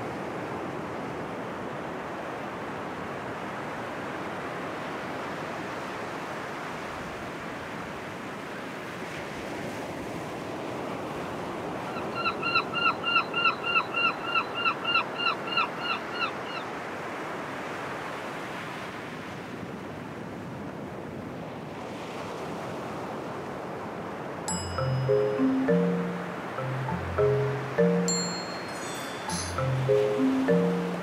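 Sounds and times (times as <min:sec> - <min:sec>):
ocean surf: 0:16.7 - 0:31.0.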